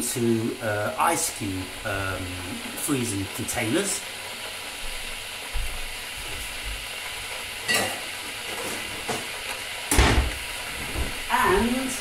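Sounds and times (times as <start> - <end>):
steady hiss: 0.0 - 12.0
footsteps: 4.8 - 6.8, 8.5 - 9.3, 10.0 - 11.8
kitchen items knocking and clattering: 9.9 - 11.2
thump: 9.9 - 11.2.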